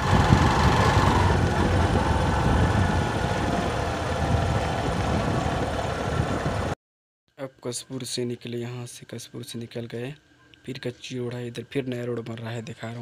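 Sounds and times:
road noise: 0.0 - 6.8
vehicle engine rumble: 0.0 - 6.8
wind noise: 0.0 - 6.8.

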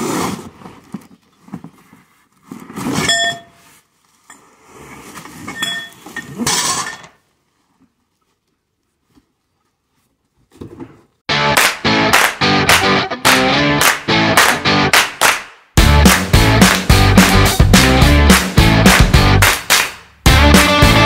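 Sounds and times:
cardboard rustling and scraping: 0.0 - 5.5
metal tubes clinking and ringing: 3.0 - 3.6, 5.5 - 7.2.

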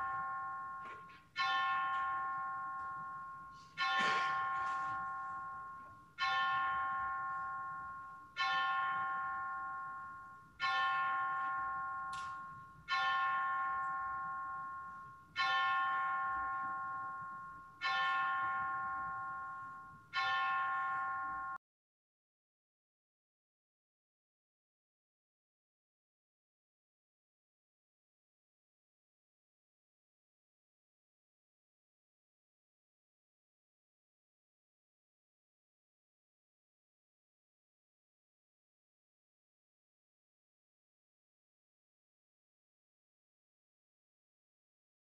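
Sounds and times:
bell tolling: 0.0 - 21.6.

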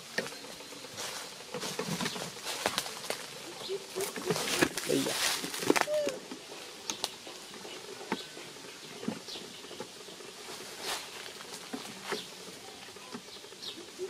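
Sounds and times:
dry leaves rustling and crackling: 0.0 - 14.0
faint outdoor hiss: 0.0 - 14.0.

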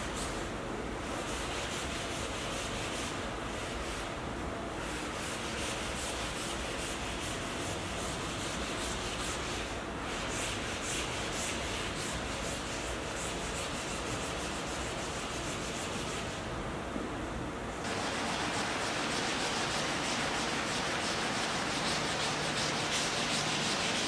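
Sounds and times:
dry scratchy scrubbing on canvas: 4.8 - 16.4, 17.8 - 24.0.

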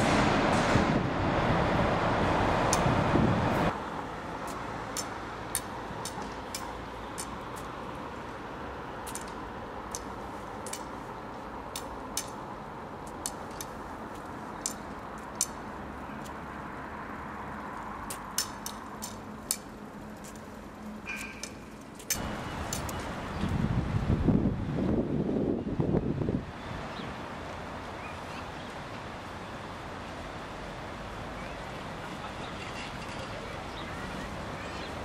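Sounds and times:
street traffic hum: 0.0 - 35.0
cane tip tapping pavement: 4.4 - 7.8, 18.0 - 20.5.

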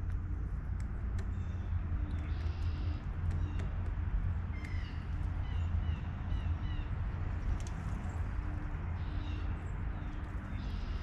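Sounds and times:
blue jay calling: 1.2 - 7.0, 8.9 - 11.0.

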